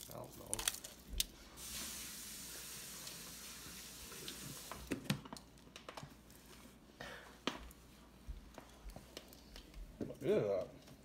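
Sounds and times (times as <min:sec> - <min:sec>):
tap water running: 0:01.6 - 0:05.3.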